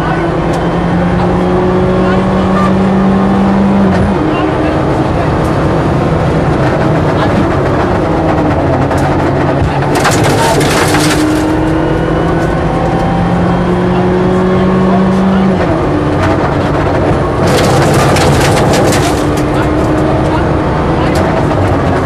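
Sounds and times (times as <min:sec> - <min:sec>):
car engine running hard: 0:00.0 - 0:22.0
dense clatter: 0:06.4 - 0:11.8, 0:16.1 - 0:20.1.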